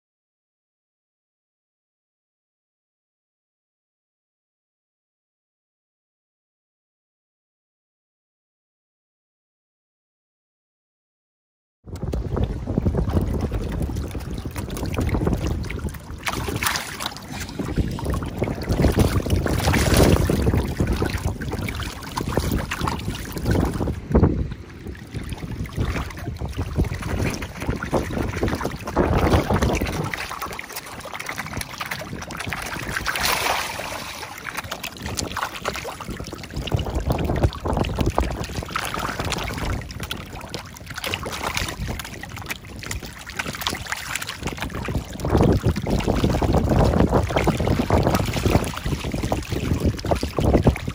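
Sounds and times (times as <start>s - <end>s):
wind noise on microphone: 11.8s - 50.9s
fish splashing in shallow water: 11.9s - 50.9s.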